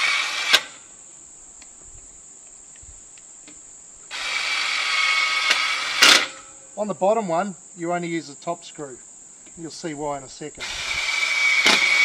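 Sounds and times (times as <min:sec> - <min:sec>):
cordless screw gun driving screw: 0:00.0 - 0:00.7, 0:04.1 - 0:06.4, 0:10.6 - 0:12.0
high-pitched insect chirring: 0:02.0 - 0:12.0.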